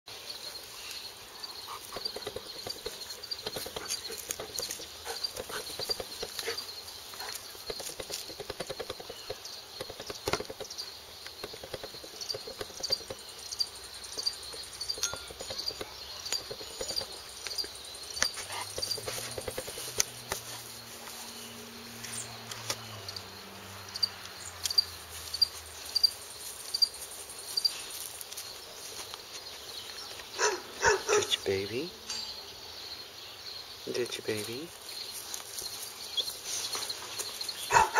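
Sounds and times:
insect chirping: 0.1 - 37.9
sharp knocks: 7.6 - 10.8.

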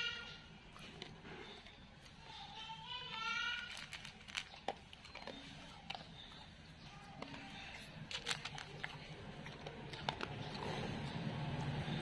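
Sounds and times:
dog crunching dry kibble: 3.1 - 12.0.

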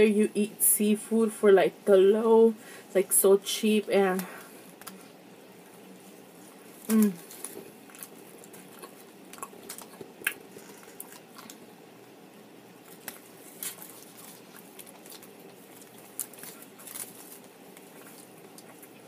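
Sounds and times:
person chewing food: 4.7 - 11.8, 12.7 - 19.0.

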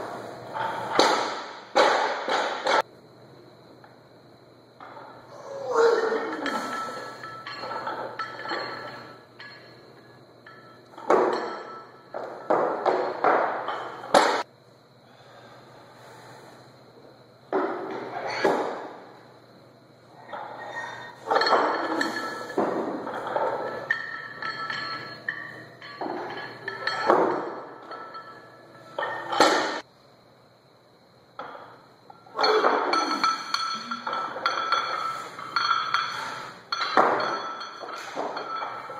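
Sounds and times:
barbell dropped on floor: 0.6 - 2.8, 11.0 - 14.4, 21.3 - 28.3, 29.0 - 29.8, 36.7 - 38.9
weight plates rattling: 5.8 - 14.4, 20.3 - 29.8, 32.3 - 38.9.

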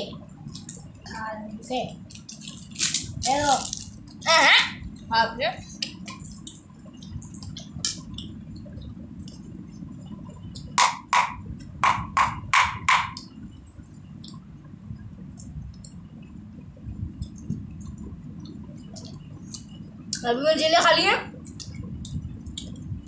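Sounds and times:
steady low hum: 0.0 - 23.0
sharp percussive hits: 10.7 - 13.2.

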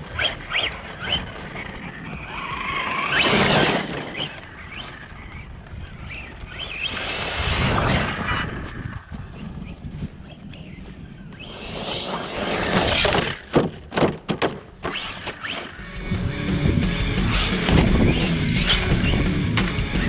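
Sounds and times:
tyres rushing on dirt: 0.0 - 10.1, 10.7 - 20.0
electric motor whining: 15.1 - 20.0.

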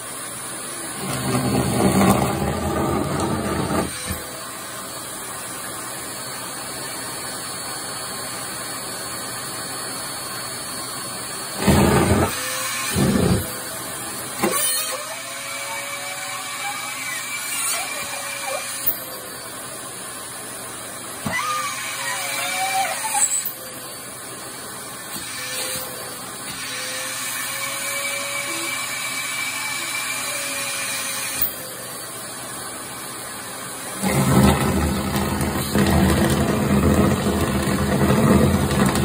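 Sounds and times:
vacuum cleaner suction: 0.0 - 4.6, 11.3 - 14.6, 33.9 - 39.0.

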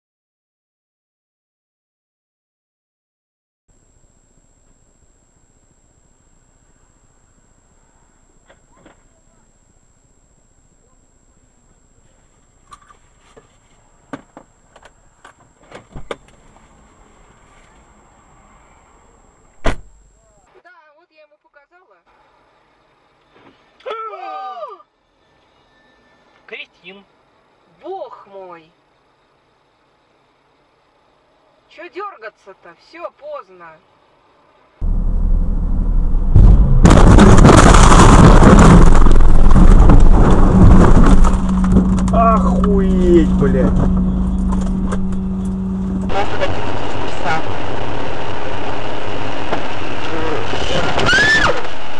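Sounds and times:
steady hum: 3.7 - 20.4, 34.2 - 51.9
faint high whine: 3.7 - 20.6, 24.9 - 51.9
loud thump: 19.6 - 20.0, 34.8 - 42.2
metal crunching in vehicle crash: 36.4 - 45.1.

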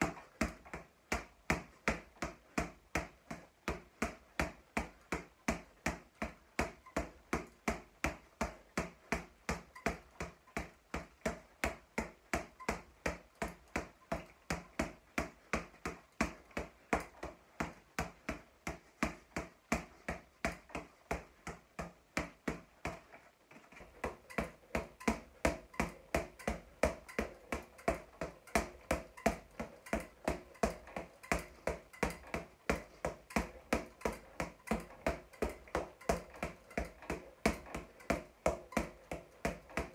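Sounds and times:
boxing gloves punching a ball: 0.0 - 39.9.

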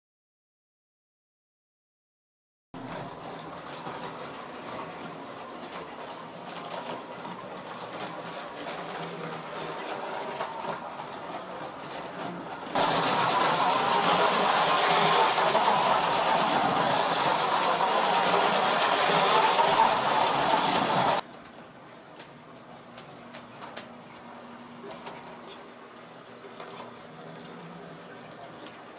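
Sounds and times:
toy train motor whirring: 6.8 - 21.2.

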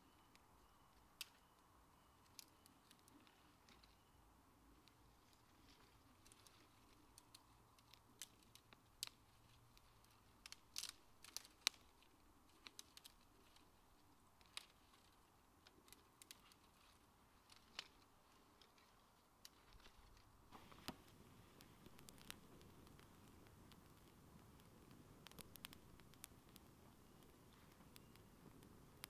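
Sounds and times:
campfire crackling and popping: 0.1 - 4.0, 4.7 - 29.0.

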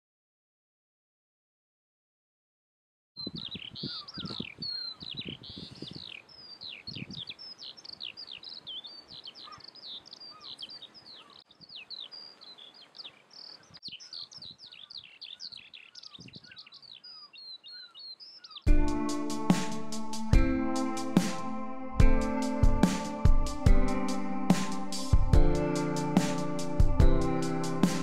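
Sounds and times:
songbirds chirping and whistling: 3.2 - 19.0
electronic music with heavy beat: 18.7 - 28.0.

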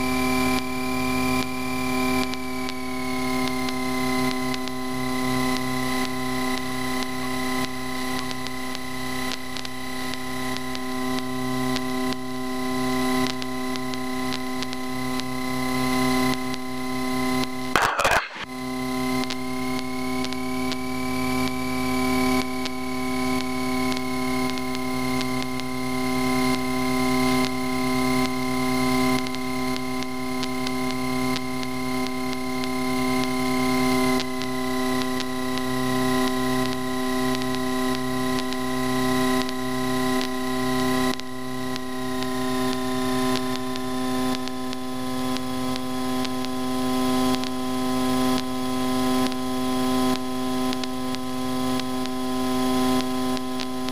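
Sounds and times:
thin high whine: 17.8 - 18.5.

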